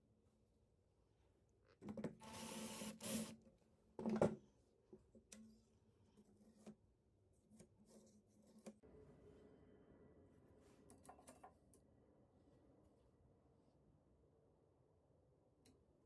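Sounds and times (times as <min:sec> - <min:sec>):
cordless drill driving a screw: 0:02.2 - 0:03.4.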